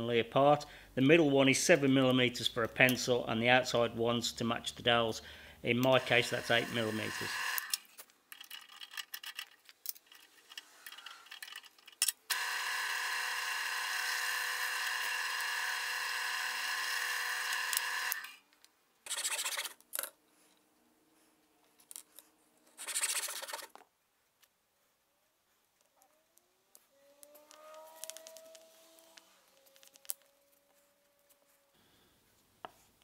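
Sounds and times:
drill press motor drilling wood: 0:05.9 - 0:07.8, 0:12.3 - 0:18.4.

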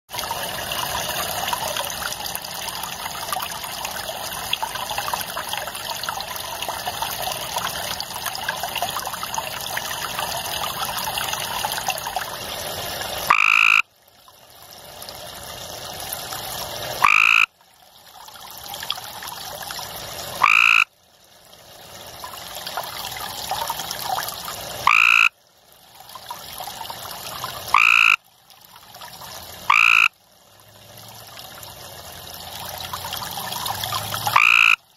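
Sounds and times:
trickling water hiss: 0:00.1 - 0:34.9
treefrog trilled calls: 0:13.3 - 0:13.8, 0:17.0 - 0:17.5, 0:20.4 - 0:20.9, 0:24.9 - 0:25.3, 0:27.7 - 0:28.2, 0:29.7 - 0:30.1, 0:34.3 - 0:34.8.

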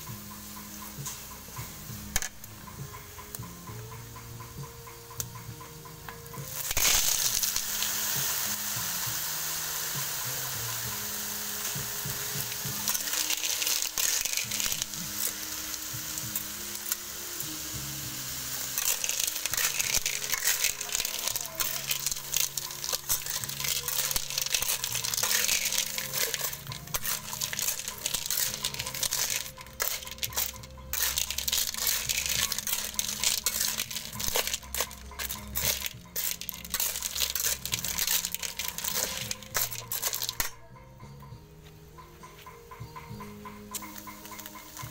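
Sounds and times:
food sizzling in a wok: 0:00.0 - 0:40.6, 0:43.4 - 0:44.9
clam shells clattering in a wok: 0:02.2 - 0:02.4, 0:06.5 - 0:08.2, 0:11.1 - 0:17.2, 0:18.5 - 0:40.6.

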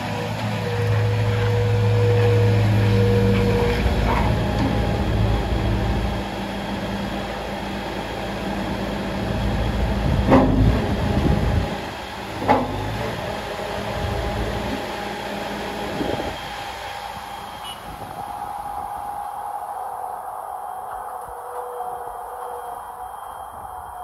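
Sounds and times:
diesel loader engine running: 0:00.0 - 0:24.0
sharp clunks: 0:10.2 - 0:10.8.

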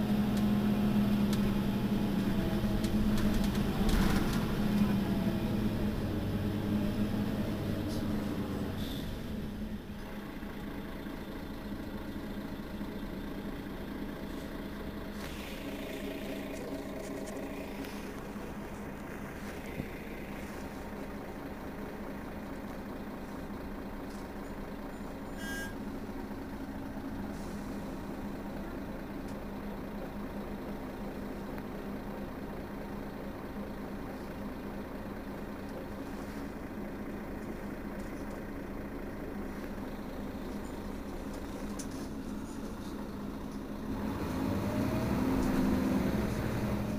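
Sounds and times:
bus engine idling: 0:00.0 - 0:46.9
high beep: 0:25.4 - 0:25.8.

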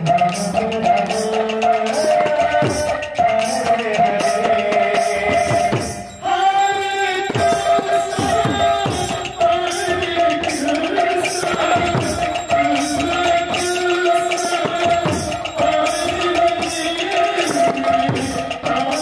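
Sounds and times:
man singing into microphone: 0:00.0 - 0:19.0
small cymbals jingling: 0:05.4 - 0:18.6.

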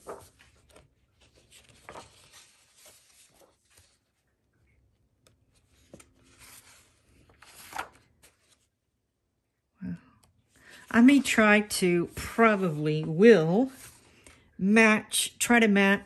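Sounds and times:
pages turning: 0:00.0 - 0:08.8, 0:10.7 - 0:14.4.

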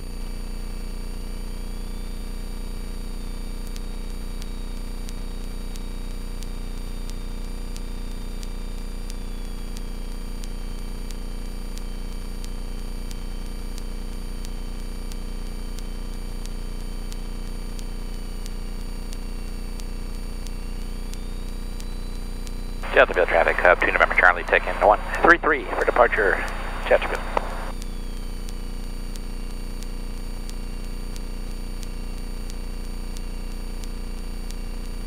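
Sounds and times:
faint high whine: 0:01.4 - 0:35.0
faint ticks: 0:03.6 - 0:22.6, 0:26.4 - 0:35.0
electrical hum: 0:10.5 - 0:35.0.

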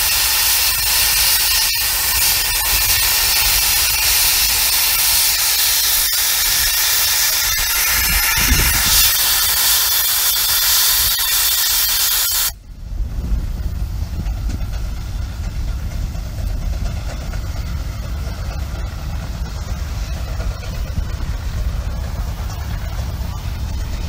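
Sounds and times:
steam venting hiss: 0:00.0 - 0:24.0
low engine rumble: 0:12.6 - 0:24.0.

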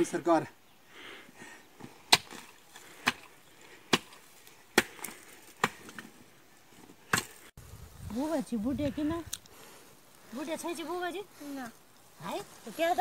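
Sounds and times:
hoe striking hard soil: 0:06.8 - 0:07.5.

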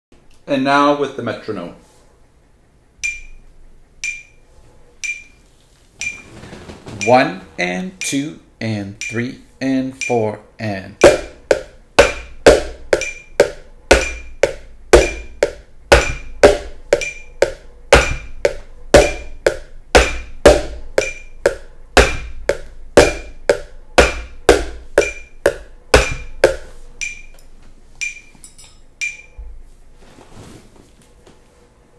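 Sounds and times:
metronome beeps: 0:03.0 - 0:04.4, 0:05.0 - 0:05.4, 0:06.0 - 0:06.2, 0:07.0 - 0:07.4, 0:08.9 - 0:10.4, 0:11.0 - 0:27.4, 0:28.0 - 0:29.5
stick tapping plastic container: 0:11.0 - 0:27.3.

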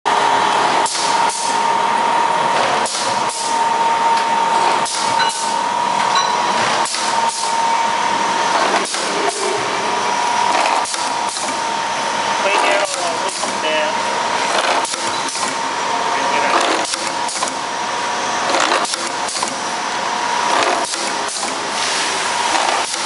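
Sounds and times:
machine high whine: 0:00.1 - 0:23.0
pneumatic hissing clacks: 0:00.8 - 0:01.6, 0:02.6 - 0:03.6, 0:04.6 - 0:05.6, 0:06.6 - 0:07.6, 0:08.5 - 0:09.7, 0:10.4 - 0:11.6, 0:12.5 - 0:13.6, 0:14.5 - 0:15.7, 0:16.5 - 0:17.7, 0:18.4 - 0:19.7, 0:20.4 - 0:23.0.

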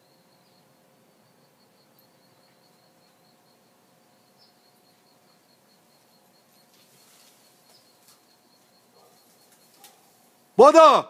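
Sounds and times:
insect chirping: 0:00.0 - 0:10.6
soft rustles: 0:06.5 - 0:10.3.

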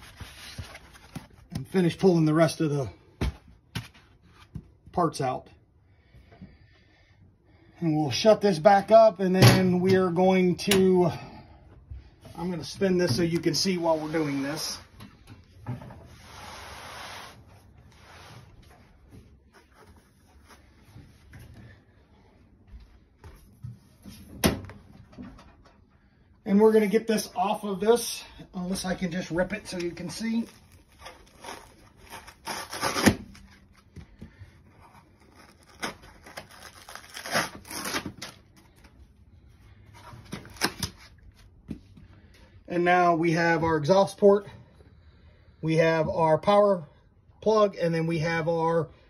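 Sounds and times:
packing material tearing and scraping: 0:00.0 - 0:01.4, 0:29.7 - 0:33.9, 0:34.7 - 0:38.8.

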